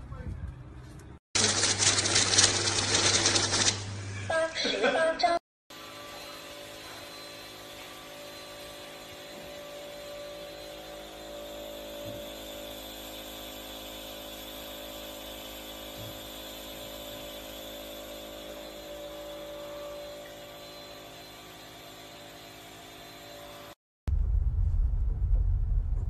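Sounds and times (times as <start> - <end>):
nebulizer motor humming: 5.8 - 23.8.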